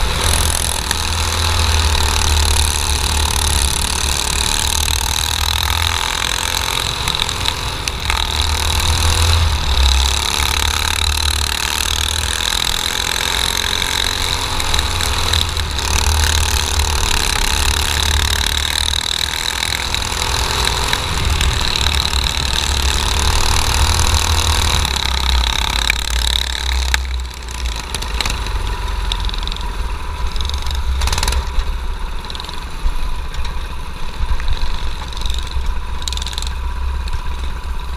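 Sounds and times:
kart engine running hard: 0:00.0 - 0:37.9.

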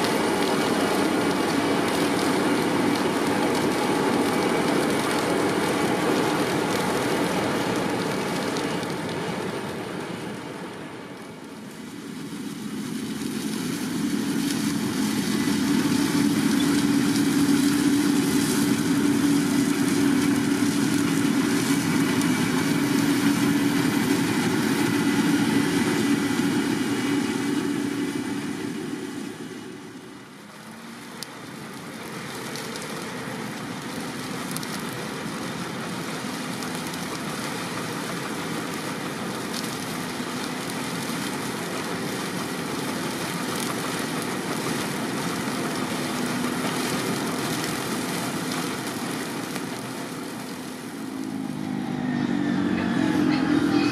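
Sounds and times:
harvester engine and machinery hum: 0:00.0 - 0:53.9.

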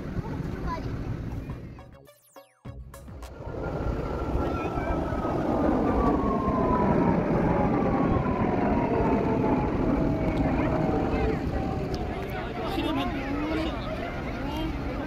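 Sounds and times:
jet airliner flying overhead: 0:03.1 - 0:15.0.

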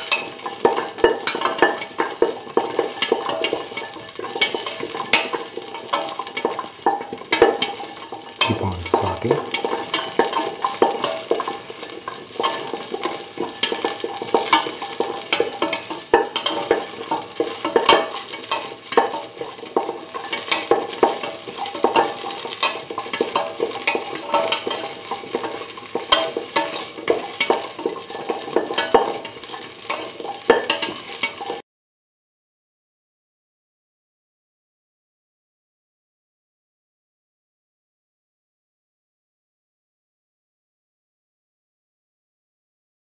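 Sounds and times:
shallots sizzling in hot oil: 0:00.0 - 0:31.6.

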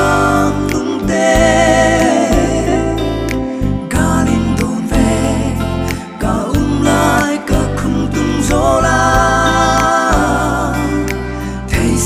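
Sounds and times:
electric bass guitar: 0:00.0 - 0:12.0
man singing: 0:03.9 - 0:11.1, 0:11.7 - 0:12.0.

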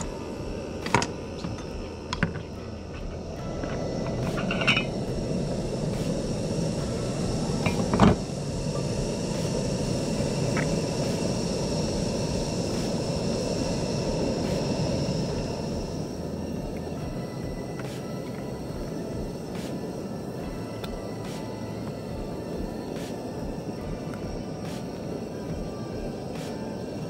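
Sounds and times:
steady rushing noise: 0:00.0 - 0:27.0
metal lid clanking on pot: 0:04.3 - 0:05.0.

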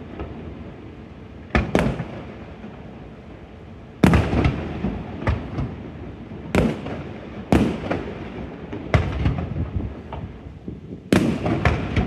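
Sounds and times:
fireworks booming: 0:01.5 - 0:03.0, 0:04.0 - 0:12.0
small fireworks pops: 0:08.7 - 0:12.0.

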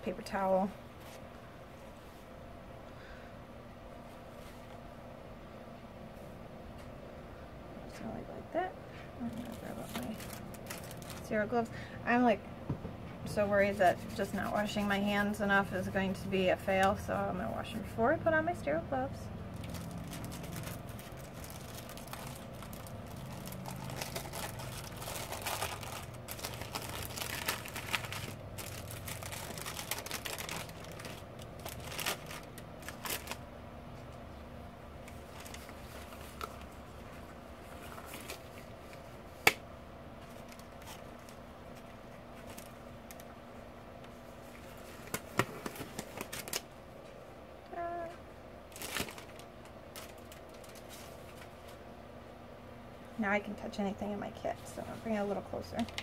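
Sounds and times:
wrapper crinkling and rustling: 0:09.2 - 0:11.5, 0:19.5 - 0:33.5, 0:35.0 - 0:39.5, 0:40.2 - 0:43.3, 0:44.3 - 0:46.7, 0:48.7 - 0:51.8.

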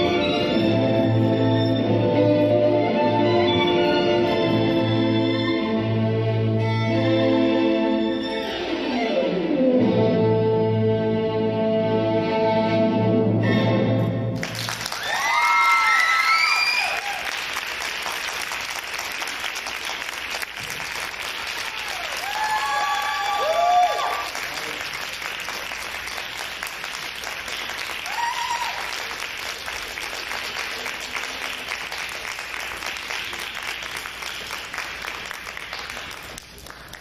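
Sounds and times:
audience applauding: 0:14.4 - 0:37.0
whooping cheers: 0:14.9 - 0:17.4, 0:21.6 - 0:24.4, 0:28.0 - 0:29.1.

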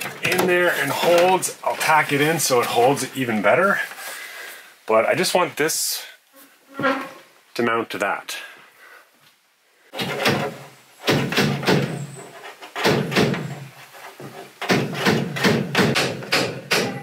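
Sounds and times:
hammer hitting nail in wood: 0:14.6 - 0:17.0.

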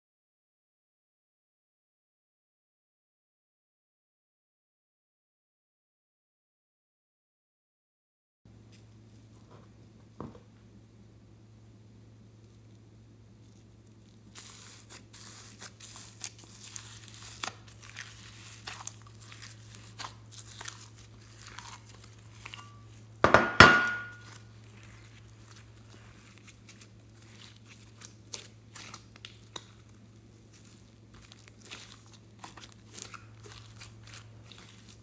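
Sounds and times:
slime squishing: 0:12.4 - 0:23.2, 0:24.0 - 0:35.0
slime crackling and tearing: 0:13.4 - 0:23.0, 0:24.2 - 0:35.0
loud slime squelch: 0:13.4 - 0:23.2, 0:24.1 - 0:35.0.

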